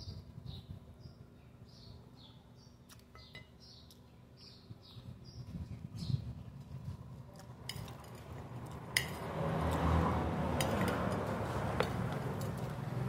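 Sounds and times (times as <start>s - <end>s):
background noise: 0.0s - 13.0s
cutlery clinking on a plate: 9.0s - 9.3s.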